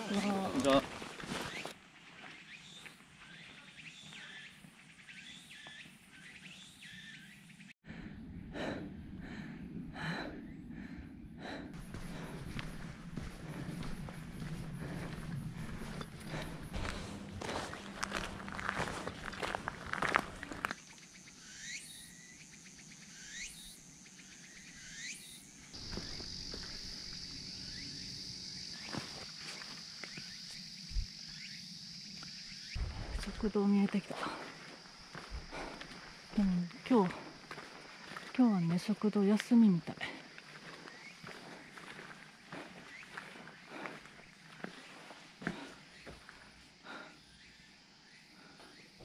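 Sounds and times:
outdoor ambience: 0:00.0 - 0:49.0
high-pitched insect drone: 0:11.8 - 0:38.4
short rising insect calls: 0:12.8 - 0:33.4.

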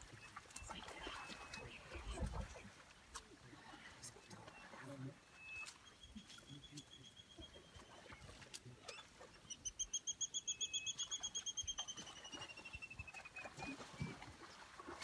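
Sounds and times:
bird calling a fast trill: 0:08.9 - 0:13.8.

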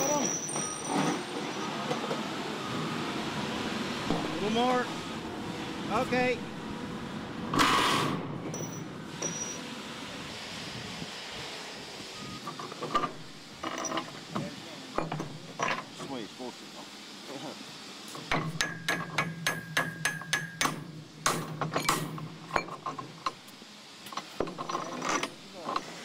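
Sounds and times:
hand tools clicking on steel bolts: 0:18.3 - 0:23.4.

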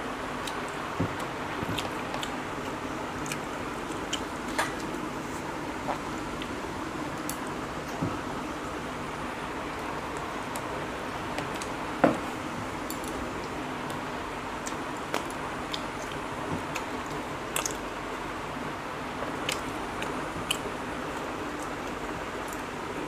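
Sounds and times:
chewing mouth clicks and smacks: 0:14.6 - 0:17.8.

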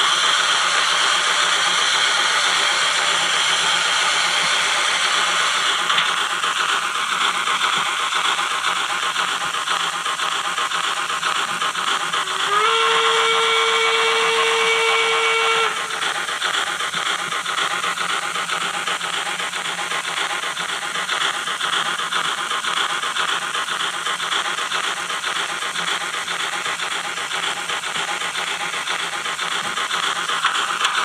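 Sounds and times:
steam exhaust chuffing and hiss: 0:00.0 - 0:31.0
steam locomotive whistle: 0:12.3 - 0:16.1.

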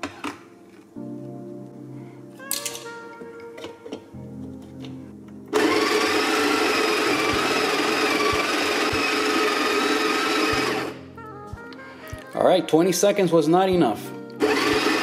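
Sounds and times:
coffee grinder whirring: 0:05.6 - 0:11.0, 0:14.4 - 0:15.0.

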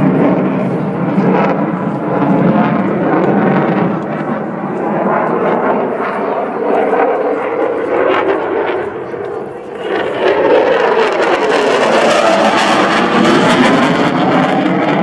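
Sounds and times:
crowd: 0:00.0 - 0:15.0
jet engines roaring: 0:00.0 - 0:15.0.

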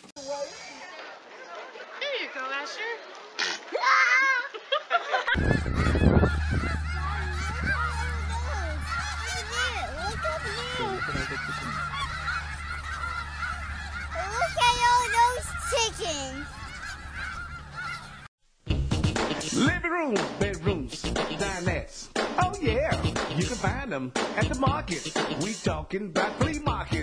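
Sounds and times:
steady low hum: 0:05.4 - 0:14.3
geese honking: 0:05.4 - 0:18.3.

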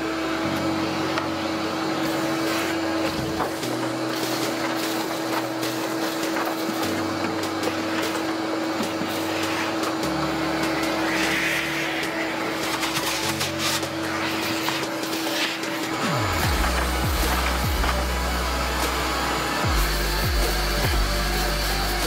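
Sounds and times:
vacuum running with whine: 0:00.0 - 0:22.0
debris clicking in hose: 0:02.0 - 0:19.2.

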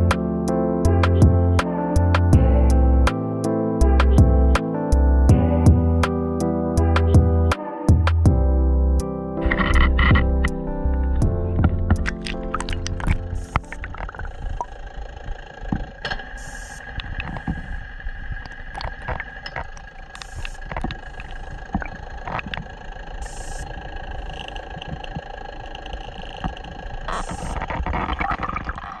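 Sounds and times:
steady background tones: 0:08.6 - 0:28.3.

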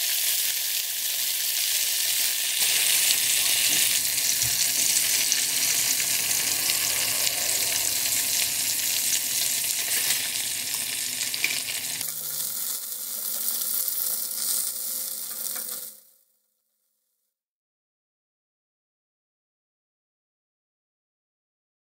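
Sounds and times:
food sizzling in hot oil: 0:00.0 - 0:16.4.

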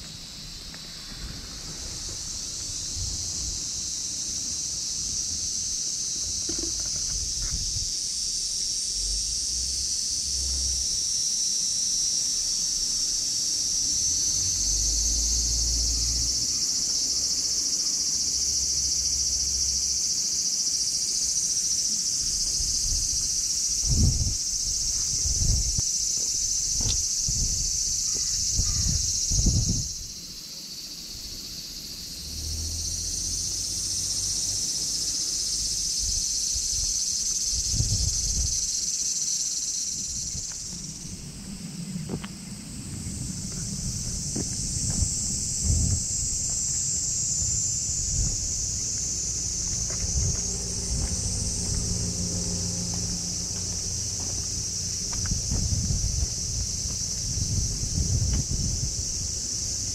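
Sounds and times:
wind rumbling on microphone: 0:00.0 - 0:04.2, 0:04.8 - 0:08.2, 0:22.2 - 0:30.3, 0:35.6 - 0:38.8, 0:39.8 - 0:59.9
insects droning: 0:00.0 - 0:59.9
low thumps: 0:47.4 - 0:59.2.

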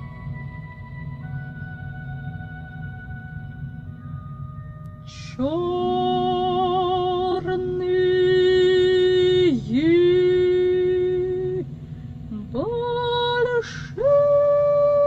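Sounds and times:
low hum: 0:00.0 - 0:15.0
soprano singing held notes: 0:04.8 - 0:15.0.

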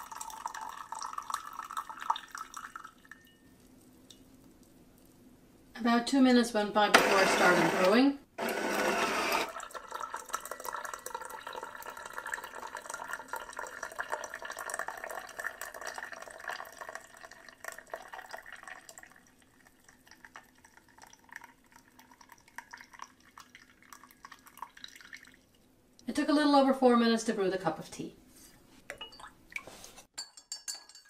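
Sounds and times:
tea pouring into mug: 0:00.0 - 0:03.3, 0:08.4 - 0:25.5.

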